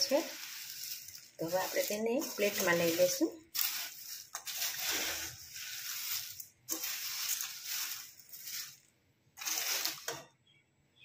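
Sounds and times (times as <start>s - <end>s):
spatula stirring puffed rice: 0.0s - 10.2s.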